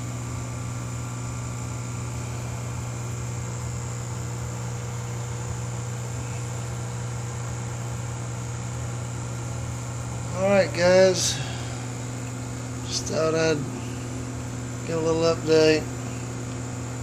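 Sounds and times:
aquarium pumps humming: 0:00.0 - 0:17.0.

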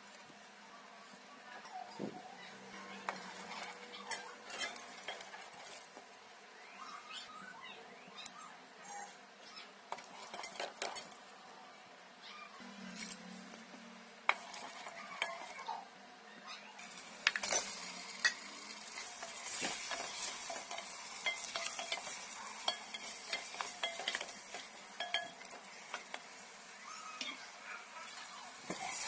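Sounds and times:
spices sizzling in oil: 0:02.7 - 0:06.0, 0:09.9 - 0:11.2, 0:14.3 - 0:15.8, 0:16.8 - 0:29.0
wooden spoon scraping a pot: 0:02.9 - 0:06.0, 0:09.9 - 0:11.2, 0:14.3 - 0:15.7, 0:16.8 - 0:26.3.

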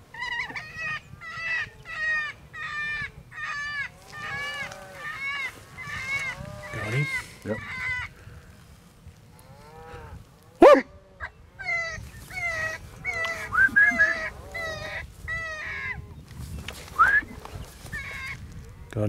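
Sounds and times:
yelping animal calls: 0:00.1 - 0:08.2, 0:09.6 - 0:16.2, 0:17.0 - 0:18.4.

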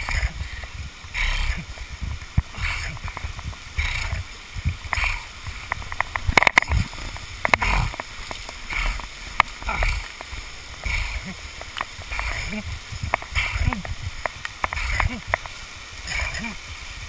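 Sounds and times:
waterfall splashing: 0:00.0 - 0:17.0
rope rasping: 0:02.4 - 0:06.8
metallic clicks of rappel gear: 0:13.1 - 0:16.4.

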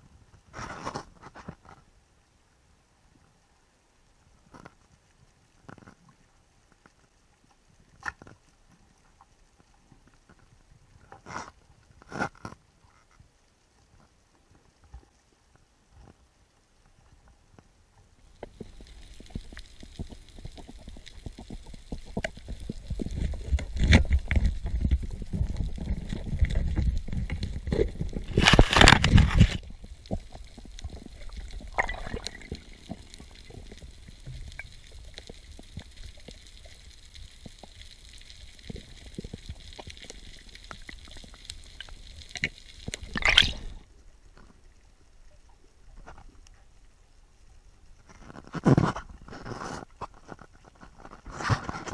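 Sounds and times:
underwater water rumbling: 0:18.3 - 0:43.9
faint clicks and knocks: 0:18.3 - 0:46.9.

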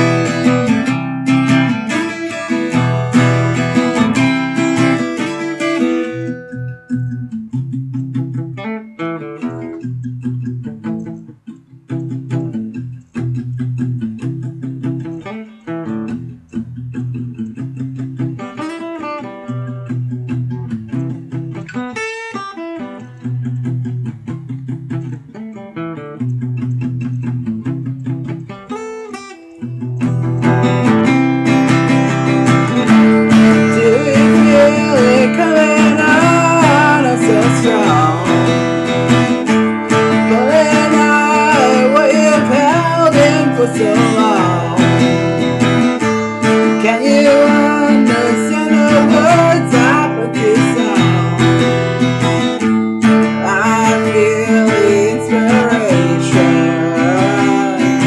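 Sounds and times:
acoustic guitar strumming: 0:00.0 - 0:58.0
man singing: 0:30.4 - 0:31.2, 0:32.5 - 0:52.4, 0:53.0 - 0:58.0.

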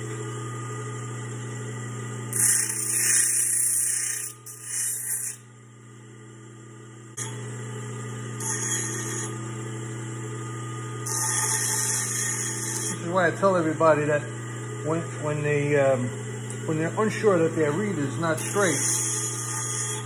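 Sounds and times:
bench grinder motor humming: 0:00.0 - 0:05.5, 0:07.2 - 0:20.0
metal grinding on wheel: 0:02.3 - 0:05.4.

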